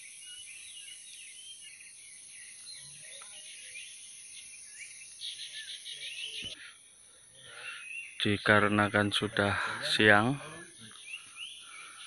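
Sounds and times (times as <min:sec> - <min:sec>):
birds chirping and whistling: 0:00.0 - 0:06.8, 0:07.4 - 0:12.0
rapid trilling bird call: 0:00.0 - 0:06.8.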